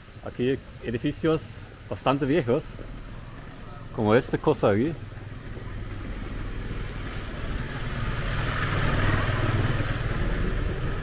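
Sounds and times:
small motorcycle engine passing: 0:04.8 - 0:11.0.

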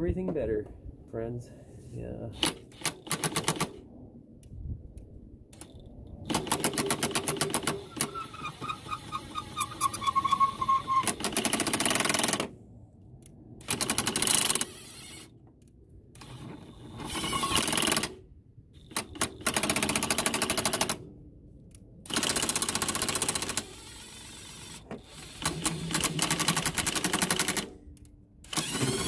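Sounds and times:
impact wrench motor whine: 0:13.7 - 0:15.3, 0:16.2 - 0:18.0, 0:22.1 - 0:27.7, 0:28.4 - 0:29.0.

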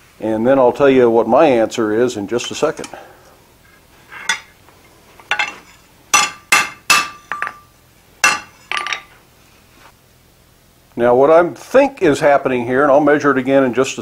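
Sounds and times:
hammer clinking on anvil: 0:04.1 - 0:04.5, 0:05.3 - 0:09.1.

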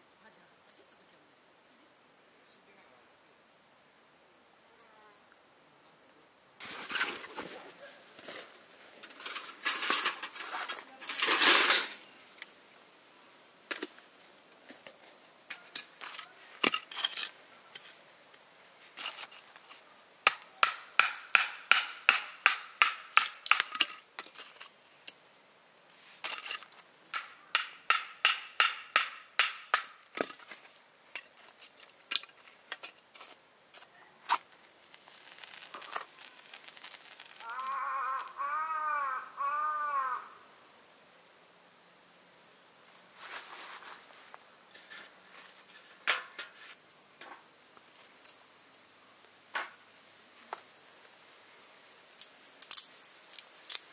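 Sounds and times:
metal cookware rustling: 0:09.0 - 0:12.1
quick regular metal strikes: 0:20.2 - 0:23.9, 0:27.1 - 0:30.1.

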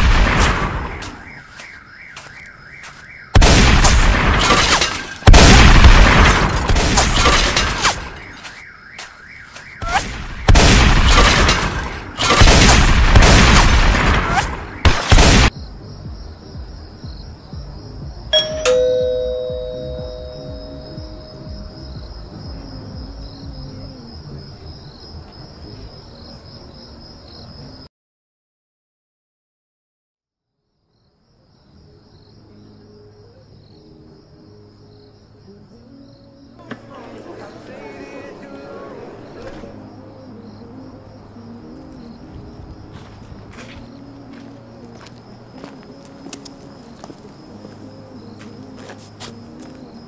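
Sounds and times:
crickets chirping: 0:00.8 - 0:03.4, 0:15.5 - 0:27.9, 0:30.6 - 0:50.0
doorbell chime: 0:18.4 - 0:21.4.

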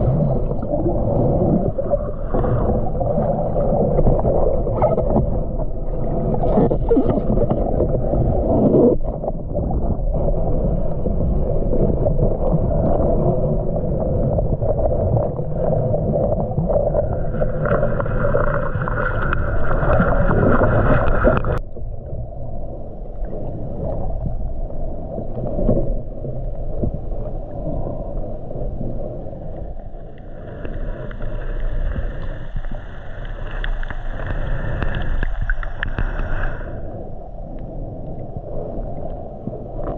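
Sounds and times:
underwater churning rumble: 0:00.0 - 0:39.9.

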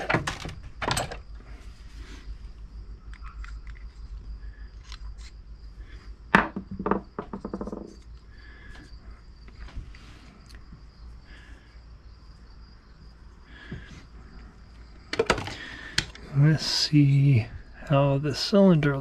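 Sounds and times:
metal parts knocking and clicking: 0:00.0 - 0:01.2, 0:06.3 - 0:08.0, 0:15.1 - 0:16.2.

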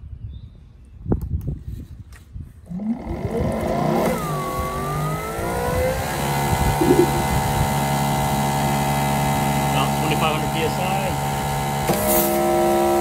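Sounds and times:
pressure washer motor whine: 0:02.8 - 0:13.0.

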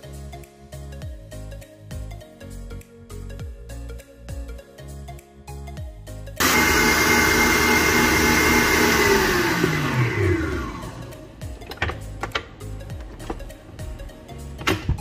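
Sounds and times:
soft background music: 0:00.0 - 0:15.0
stand mixer motor whine: 0:06.4 - 0:11.4.

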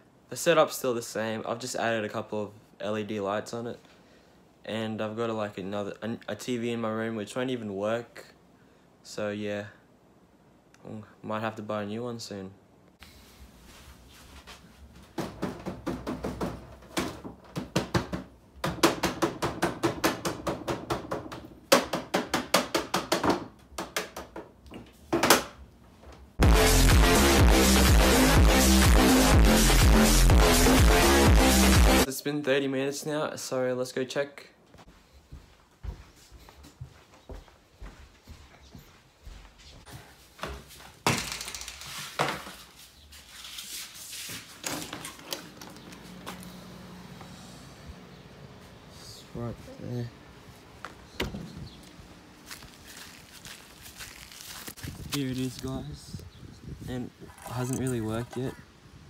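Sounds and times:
sharp knocks and clatter: 0:15.1 - 0:24.5
hands slapping plastic tv casing: 0:15.2 - 0:25.6.

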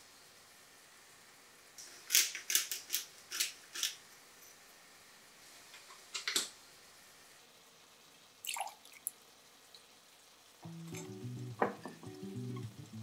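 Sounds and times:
soft background music: 0:10.6 - 0:13.0.

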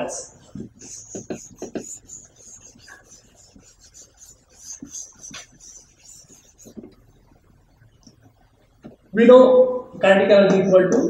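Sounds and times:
eraser rubbing on chalkboard: 0:00.4 - 0:07.0.

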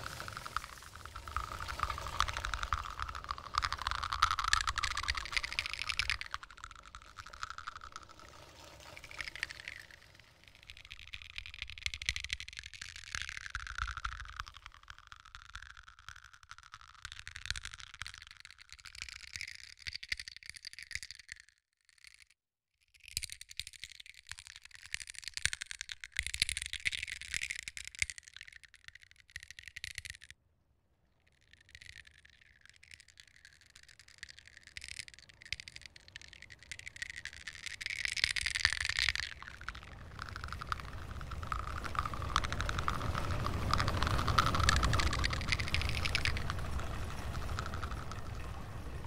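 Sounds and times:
shells and pebbles rattling: 0:00.0 - 0:22.4, 0:23.0 - 0:30.4, 0:31.2 - 0:49.0.

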